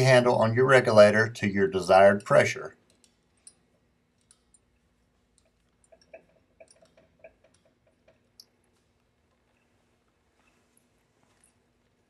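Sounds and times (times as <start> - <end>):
faint small clicks: 2.8 - 9.7.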